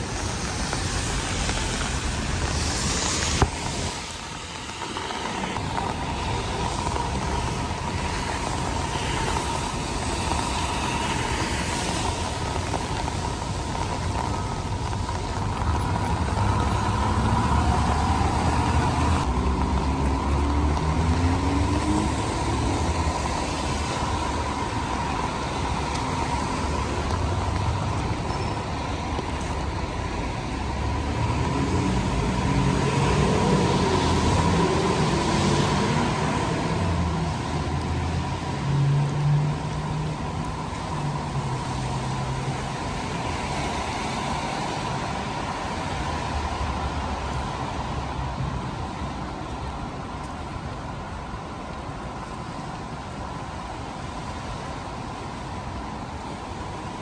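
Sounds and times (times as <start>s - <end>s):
tyres hissing on wet road: 0.0s - 57.0s
engine revving pulling away: 31.0s - 37.2s.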